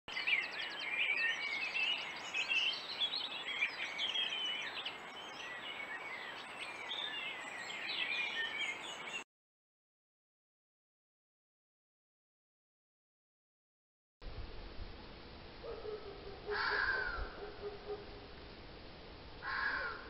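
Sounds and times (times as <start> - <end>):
birds singing: 0.1 - 9.2, 15.8 - 18.4.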